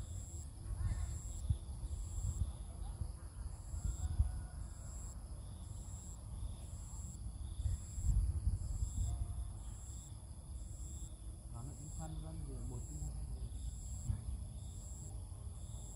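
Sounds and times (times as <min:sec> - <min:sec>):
high insect hiss: 0:00.0 - 0:02.7, 0:03.5 - 0:15.9
insects chirping in pulses: 0:00.0 - 0:02.7, 0:03.5 - 0:15.9
wind rumble on microphone: 0:00.0 - 0:04.9, 0:07.2 - 0:09.8, 0:13.2 - 0:14.8.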